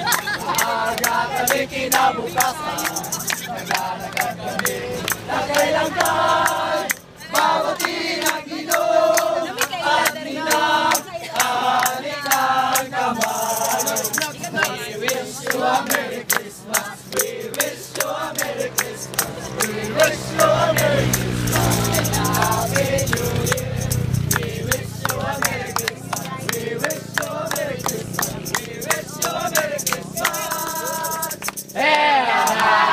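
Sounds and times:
rattling percussion beat: 0:00.0 - 0:32.8
group of people singing: 0:00.0 - 0:32.9.

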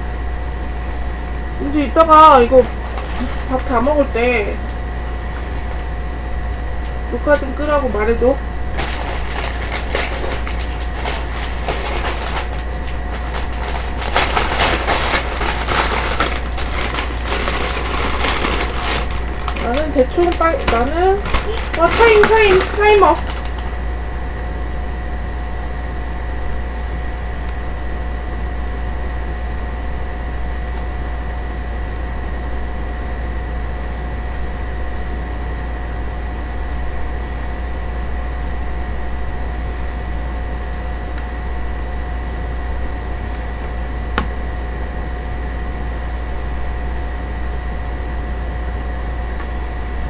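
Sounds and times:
steady hum and hiss: 0:00.0 - 0:50.0.

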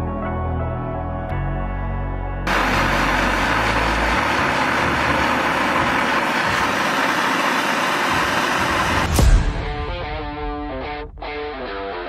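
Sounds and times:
gas torch hissing: 0:02.5 - 0:09.5.

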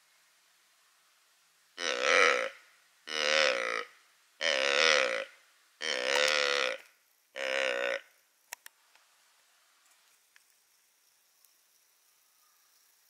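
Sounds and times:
deer call croaks: 0:01.8 - 0:08.1.

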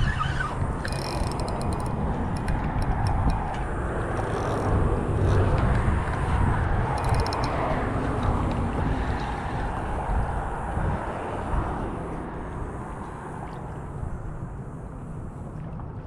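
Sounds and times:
wind buffeting microphone: 0:00.0 - 0:16.0
light ticking: 0:00.8 - 0:06.2, 0:06.9 - 0:08.6.

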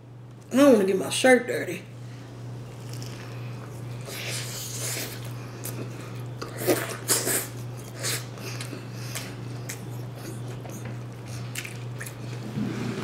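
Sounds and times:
chewing crunchy sandwich: 0:02.6 - 0:12.5.

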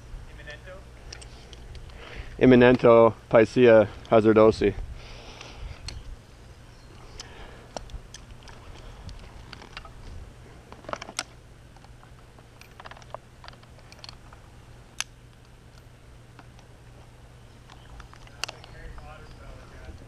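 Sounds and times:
low steady hum: 0:00.0 - 0:20.0
climbing gear clicks and clinks: 0:06.9 - 0:10.0, 0:10.7 - 0:14.4, 0:17.5 - 0:20.0.

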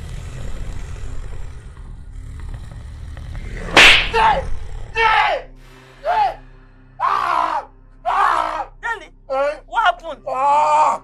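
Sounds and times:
low rumbling drone: 0:00.0 - 0:07.0.

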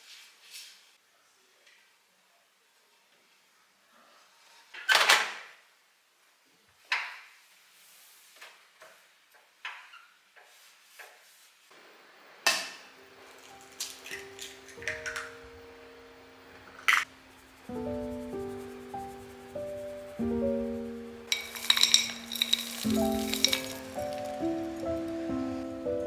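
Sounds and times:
soft music: 0:12.9 - 0:26.0.

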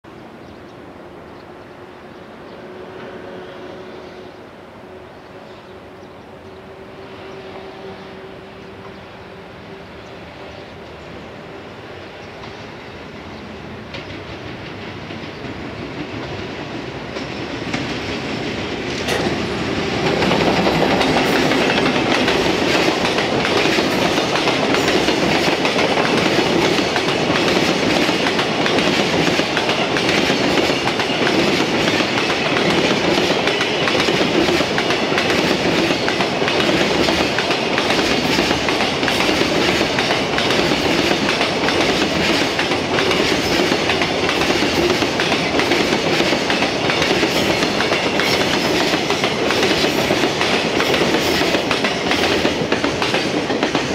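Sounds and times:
train wheels clattering on track: 0:12.0 - 0:53.9.

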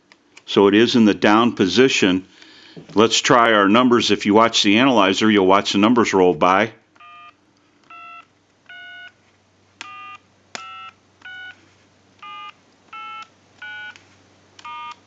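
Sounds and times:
telephone keypad tones: 0:09.8 - 0:11.6, 0:12.2 - 0:14.0, 0:14.6 - 0:15.0.

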